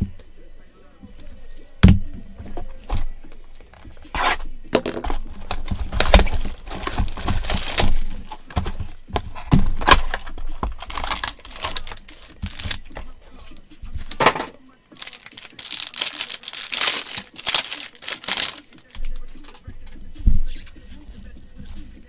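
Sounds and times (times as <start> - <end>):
plastic packaging crinkling: 3.6 - 13.1, 13.9 - 14.4, 15.0 - 19.6.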